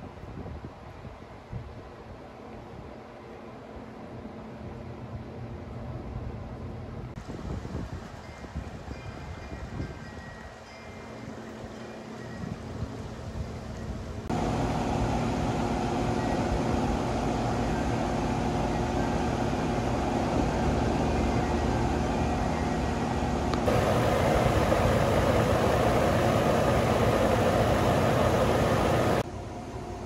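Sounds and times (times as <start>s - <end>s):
air conditioning unit humming: 14.3s - 30.0s.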